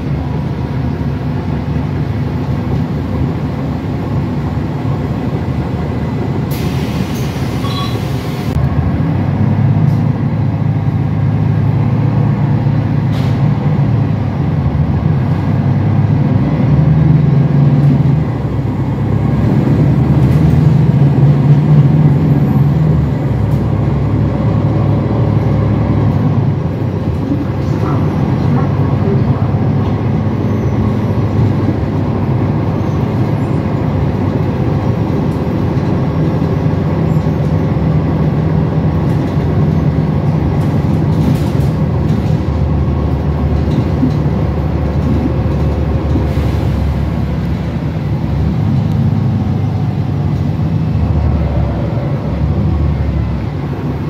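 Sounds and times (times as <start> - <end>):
bus engine drone: 0.0 - 54.0
road noise: 0.0 - 54.0.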